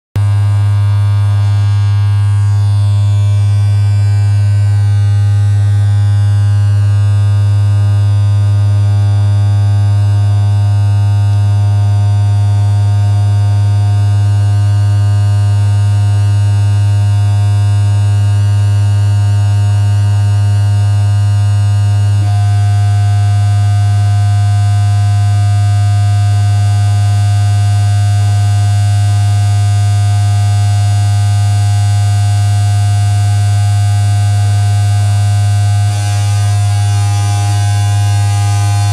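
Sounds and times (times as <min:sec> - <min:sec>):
low electronic hum: 0:00.2 - 0:38.9
held high electronic tones: 0:35.8 - 0:38.9.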